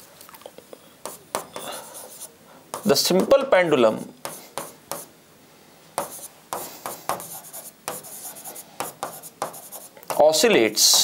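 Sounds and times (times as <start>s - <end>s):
pen tapping and scratching on screen: 1.0s - 3.4s, 4.2s - 5.1s, 6.0s - 11.0s.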